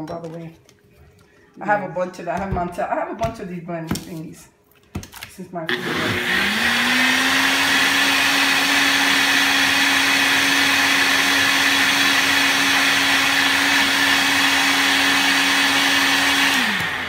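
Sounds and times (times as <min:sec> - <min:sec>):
blender motor whirring: 0:05.7 - 0:17.0.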